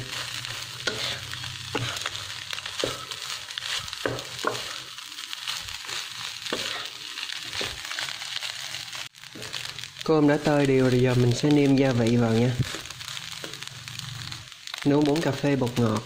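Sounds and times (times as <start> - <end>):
spatula scraping a pan: 0.0 - 9.7
rice and egg sizzling in a wok: 0.0 - 16.0.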